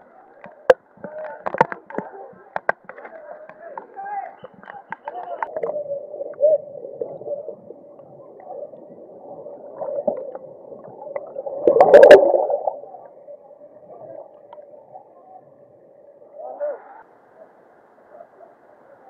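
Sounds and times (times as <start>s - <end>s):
underwater stream churning: 5.4s - 16.4s.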